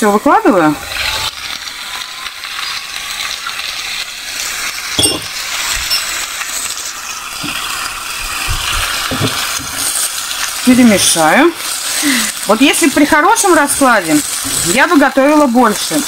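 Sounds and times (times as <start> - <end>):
vegetables sizzling in frying pan: 0.0 - 16.0
sharp clink: 5.0 - 5.3.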